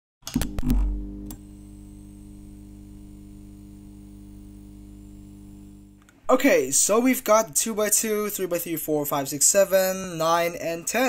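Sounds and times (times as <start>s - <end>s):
buzzing electrical hum: 0.3s - 7.5s
static crackle: 0.6s - 6.2s.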